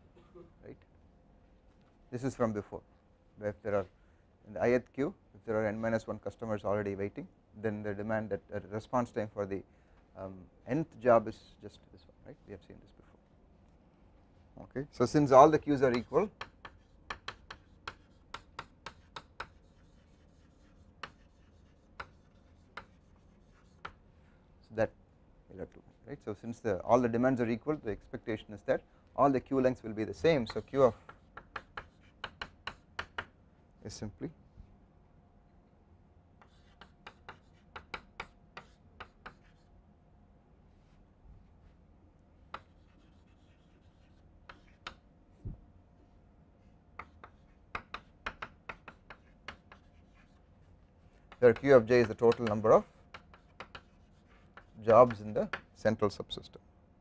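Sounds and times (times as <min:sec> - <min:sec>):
chalk tapping on blackboard: 0:15.6 - 0:24.0, 0:30.2 - 0:33.4, 0:36.4 - 0:39.7, 0:42.5 - 0:45.0, 0:46.9 - 0:50.4, 0:51.0 - 0:55.8.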